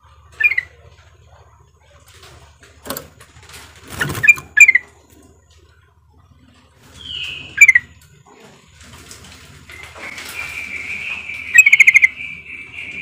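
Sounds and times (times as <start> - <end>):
bulbul calling: 0.1 - 1.0, 4.0 - 5.0, 6.8 - 8.0, 9.7 - 13.0.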